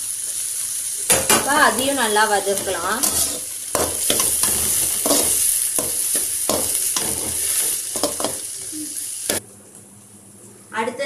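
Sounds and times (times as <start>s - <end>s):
vegetables sizzling in oil: 0.0s - 9.4s
metal ladle scraping pan: 2.5s - 8.4s.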